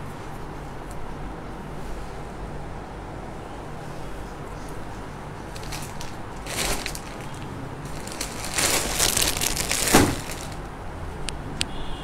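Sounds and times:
plastic packaging crinkling: 5.4s - 10.7s.

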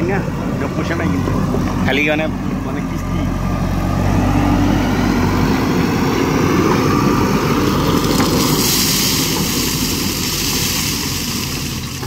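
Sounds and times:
diesel engine running: 0.0s - 12.0s
gravel pouring from bucket: 7.6s - 12.0s.

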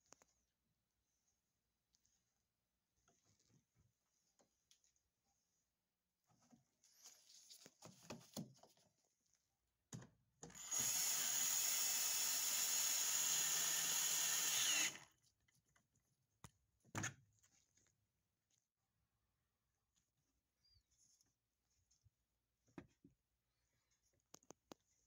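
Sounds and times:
cordless drill driving a screw: 10.5s - 15.0s.

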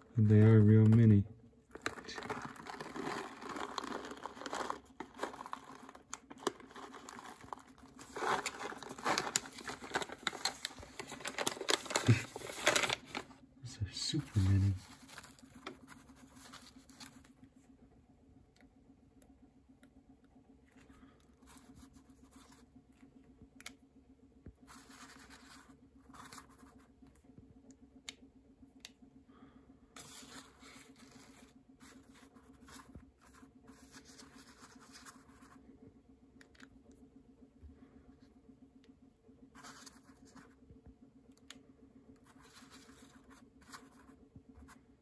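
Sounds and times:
low hum: 0.0s - 45.0s.

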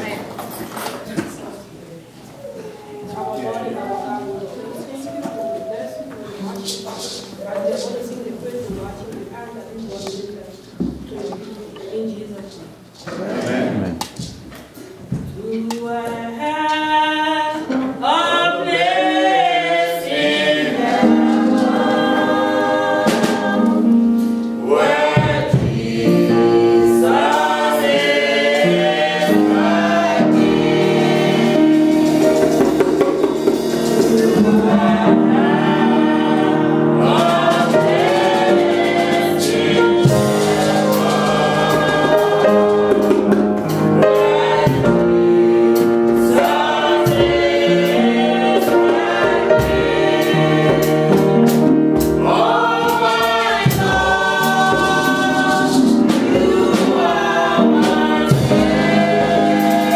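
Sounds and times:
group singing gospel song: 15.3s - 59.9s.

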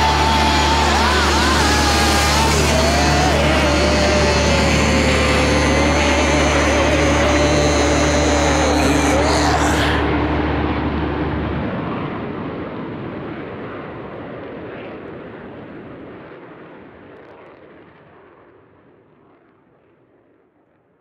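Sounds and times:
song with held notes: 0.0s - 10.6s
jet aircraft roar: 0.0s - 16.6s.

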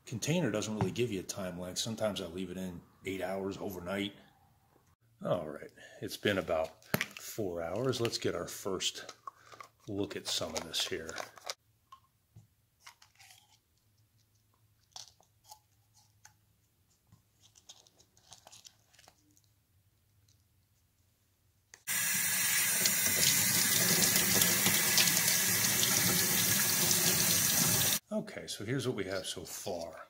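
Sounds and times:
water running into sink: 21.9s - 28.0s.

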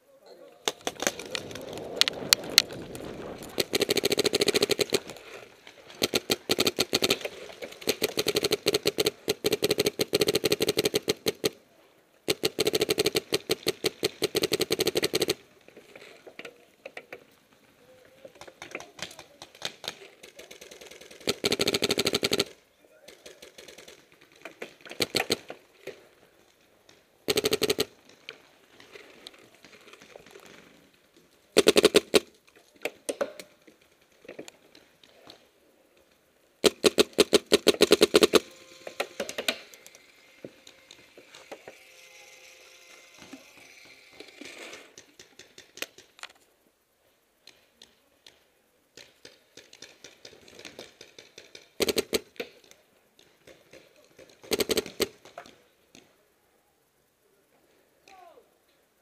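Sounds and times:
paintball markers firing: 3.4s - 5.2s, 5.9s - 11.6s, 12.3s - 15.4s, 18.4s - 25.6s, 27.3s - 28.0s, 31.6s - 33.5s, 36.6s - 40.0s, 49.0s - 56.1s.

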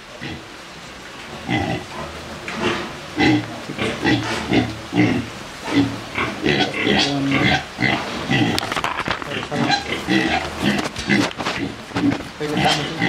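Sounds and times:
pig grunting: 1.3s - 13.0s.

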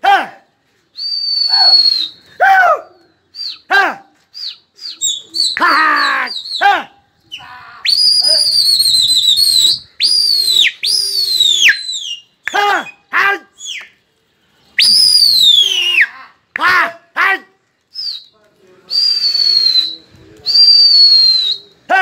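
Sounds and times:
long loud whistles: 1.0s - 2.6s, 7.8s - 12.3s, 14.7s - 16.1s, 18.9s - 21.7s
person calling: 5.4s - 8.8s.

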